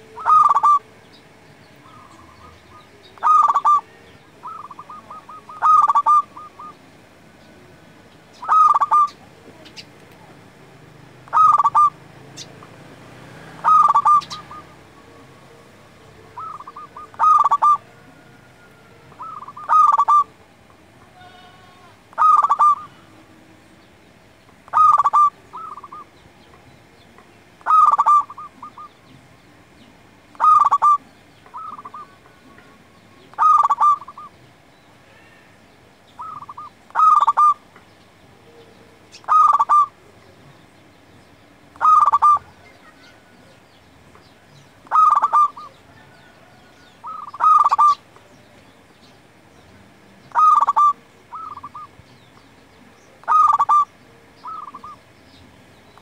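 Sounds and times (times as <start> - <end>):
dove cooing: 0.0 - 1.0, 1.8 - 6.9, 8.4 - 9.9, 11.2 - 12.7, 13.3 - 23.4, 24.7 - 26.2, 27.6 - 29.2, 30.3 - 34.4, 36.2 - 37.7, 38.4 - 40.4, 41.7 - 43.6, 44.8 - 48.2, 50.2 - 52.0, 52.8 - 55.1.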